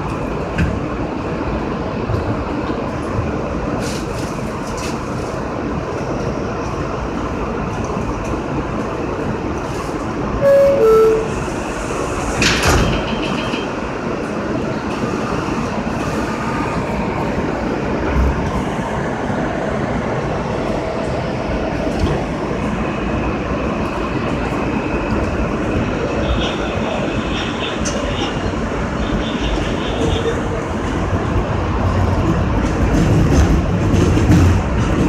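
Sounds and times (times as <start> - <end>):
subway car humming: 0.0 - 35.0
two-note falling chime: 10.4 - 11.4.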